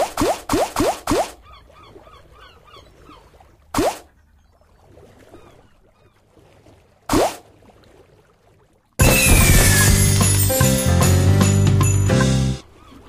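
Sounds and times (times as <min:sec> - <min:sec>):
slot reel sounds: 0:09.0 - 0:11.6.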